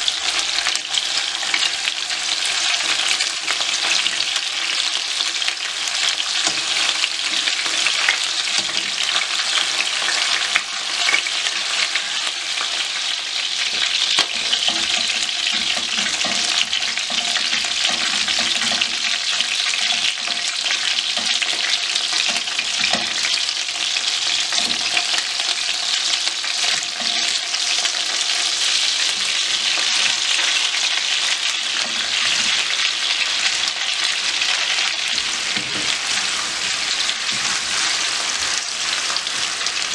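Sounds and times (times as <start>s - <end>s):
chicken sizzling in hot oil: 0.0s - 39.9s
tongs stirring food in a pan: 0.0s - 39.9s.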